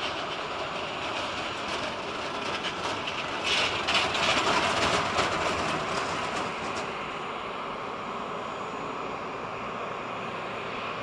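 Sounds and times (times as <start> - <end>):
jet engines rumbling: 0.0 - 11.0.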